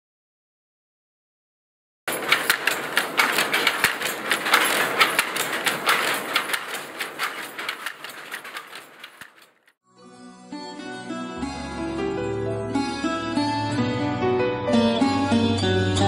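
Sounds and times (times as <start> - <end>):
wooden handloom clattering: 2.1 - 9.8.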